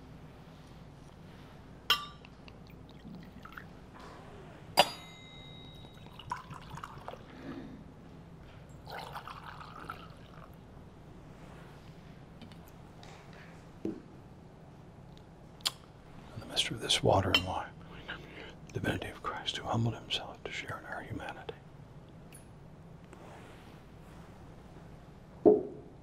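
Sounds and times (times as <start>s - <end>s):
metal vessels clinking: 1.9s - 2.4s, 4.8s - 7.1s
faint handling sounds: 23.0s - 25.1s.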